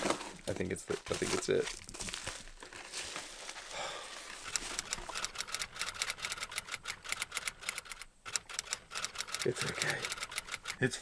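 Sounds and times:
rapid irregular clicking: 4.3s - 11.0s.

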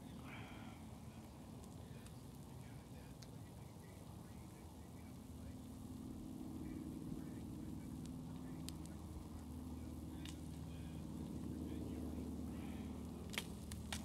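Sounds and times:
low steady rumble: 0.0s - 14.0s
motor-like hum: 0.0s - 14.0s.

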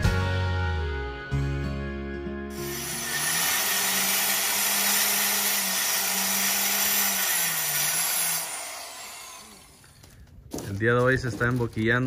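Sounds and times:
electric saw cutting tile: 2.5s - 10.1s
saw motor hum: 2.5s - 10.2s.

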